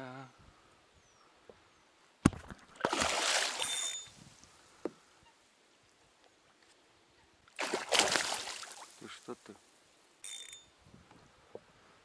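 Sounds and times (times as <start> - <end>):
water splashing: 2.3 - 4.0, 7.6 - 9.1.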